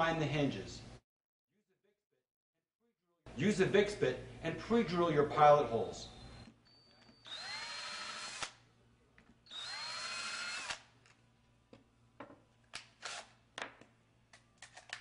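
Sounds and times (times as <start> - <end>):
power drill whining: 6.3 - 8.6, 9.5 - 10.8.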